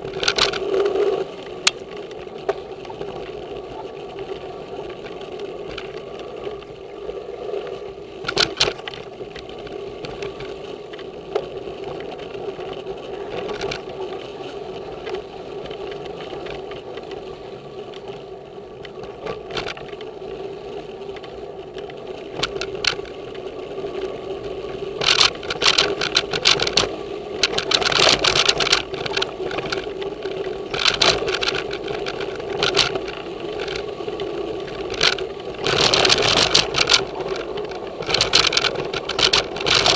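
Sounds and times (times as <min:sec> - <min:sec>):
bike rattling over rough ground: 0:00.0 - 0:39.9
bike tyres and drivetrain hum: 0:00.0 - 0:39.9.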